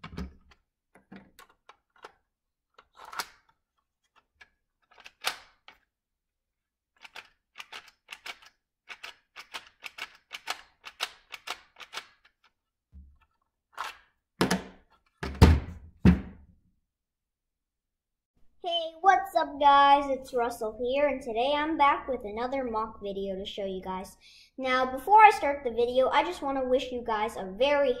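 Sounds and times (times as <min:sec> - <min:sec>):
plastic bricks clicking: 0:00.0 - 0:05.9, 0:07.0 - 0:12.6.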